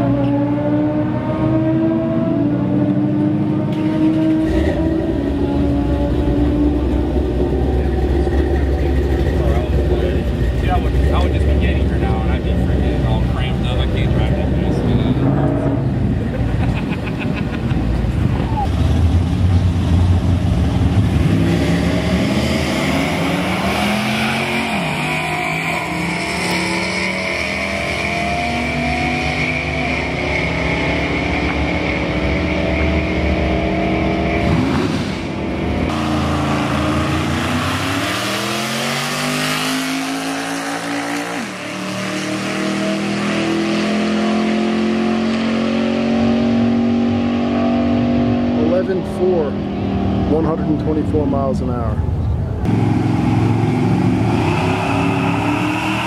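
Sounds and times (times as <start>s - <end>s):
drag-racing cars accelerating: 0.0s - 56.0s.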